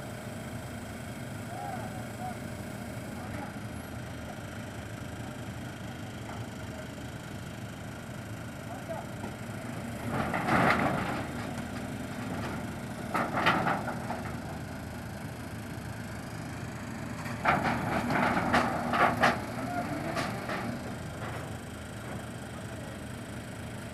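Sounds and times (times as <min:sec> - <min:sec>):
crane engine running: 0:00.0 - 0:23.9
clattering knocks and creaks: 0:10.1 - 0:14.6, 0:17.2 - 0:21.4.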